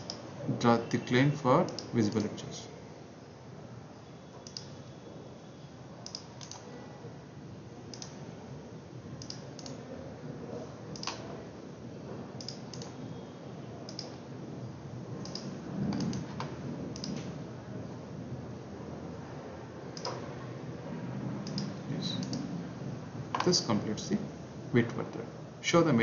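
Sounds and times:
computer mouse clicks: 0.0s - 0.2s, 1.6s - 2.3s, 4.4s - 4.7s, 6.0s - 6.7s, 7.9s - 8.2s, 9.2s - 9.8s, 10.9s - 11.3s, 12.4s - 13.0s, 13.9s - 14.2s, 15.2s - 17.3s, 20.0s - 20.2s, 21.4s - 22.5s
steady low background hum: 0.0s - 26.0s.

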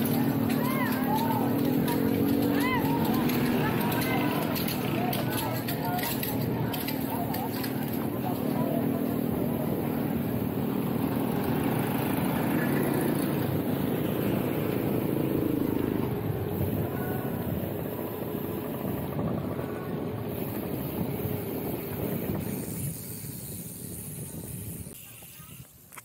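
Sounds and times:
tyres rumbling on road: 0.0s - 25.0s
wind rushing over microphone: 8.2s - 25.0s.

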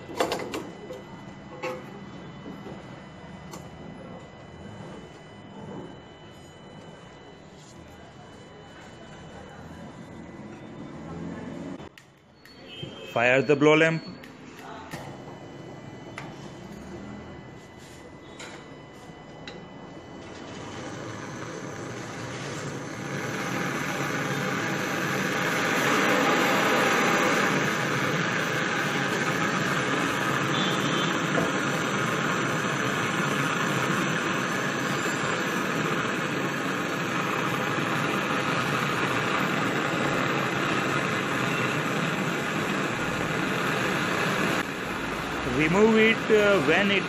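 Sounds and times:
blow lamp hissing: 14.5s - 47.0s.

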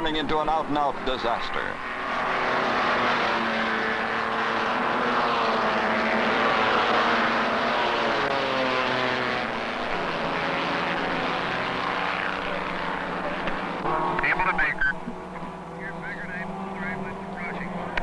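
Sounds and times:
vehicle engine droning: 0.0s - 18.0s.

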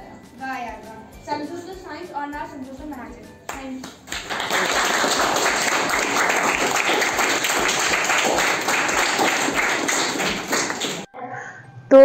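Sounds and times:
people applauding: 3.8s - 11.1s.

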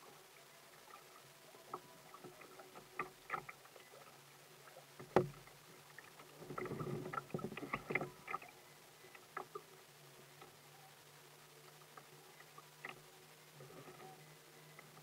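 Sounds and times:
waves lapping against kayak hull: 0.8s - 9.8s.

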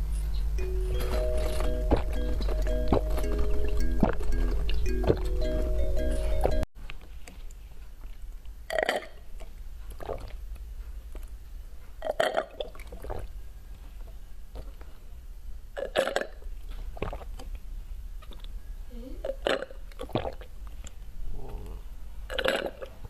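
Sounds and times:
person drinking through a straw: 10.0s - 10.4s, 12.0s - 13.3s, 17.0s - 17.5s, 19.3s - 20.5s, 22.3s - 23.0s
gulps swallowing: 19.2s - 20.5s, 21.3s - 23.0s.

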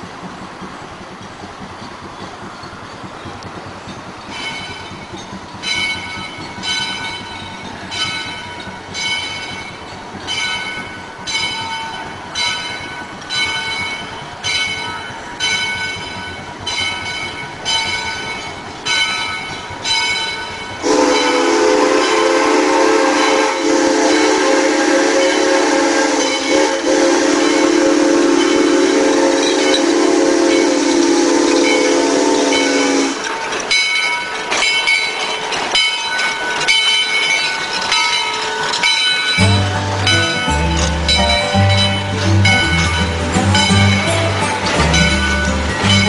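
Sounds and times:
locomotive bell ringing: 3.8s - 46.0s
steam whistle blast: 20.8s - 33.2s.

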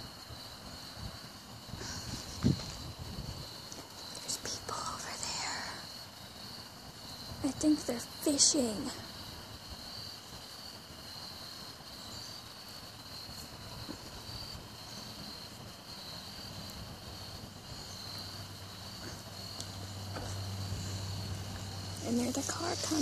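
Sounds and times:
insects chirping: 0.0s - 23.0s
car approaching hum: 17.2s - 23.0s.

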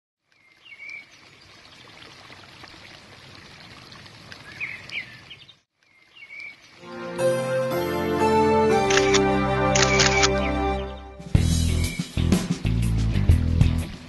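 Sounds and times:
outdoor noise like flowing water: 0.2s - 7.2s.

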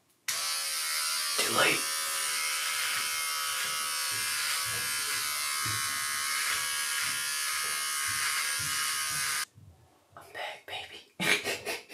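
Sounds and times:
electric trimmer buzzing: 0.3s - 9.5s.

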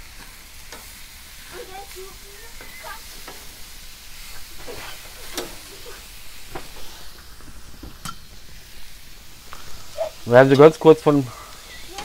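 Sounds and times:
meat sizzling on grill: 0.0s - 12.0s.

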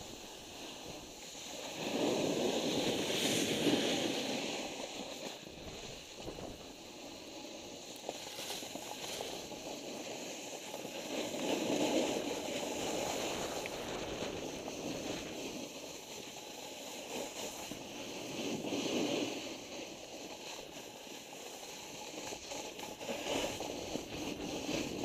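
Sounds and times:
wind on microphone: 0.0s - 6.9s, 12.1s - 15.6s
snowboard sliding on snow: 0.0s - 25.0s.

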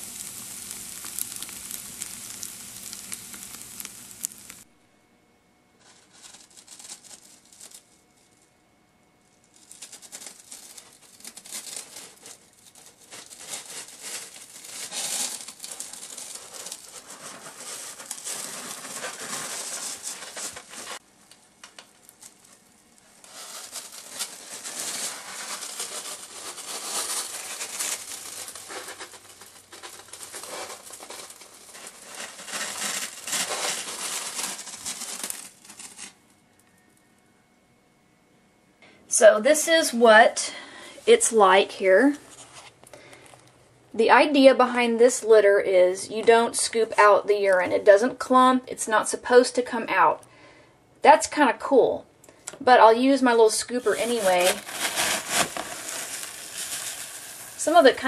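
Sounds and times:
cat digging in crunching litter: 0.0s - 4.7s, 5.8s - 8.4s, 9.4s - 21.0s, 21.7s - 36.2s, 53.7s - 58.0s.

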